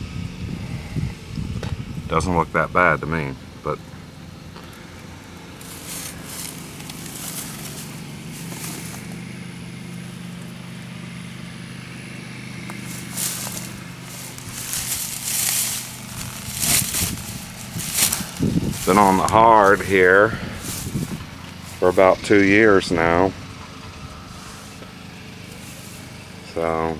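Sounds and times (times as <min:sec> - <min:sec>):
steady low hum: 0:00.0 - 0:26.9
footsteps in dry grass: 0:04.7 - 0:11.0, 0:11.9 - 0:26.4.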